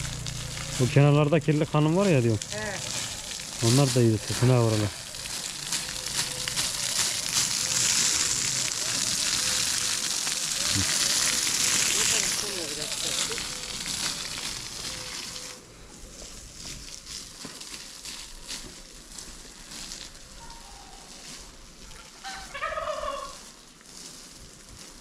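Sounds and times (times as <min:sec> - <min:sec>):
poultry calling: 0:21.9 - 0:23.4.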